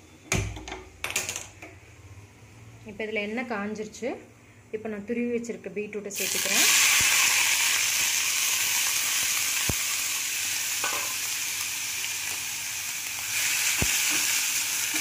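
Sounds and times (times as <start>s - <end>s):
beetroot sizzling in hot oil: 6.2s - 15.0s.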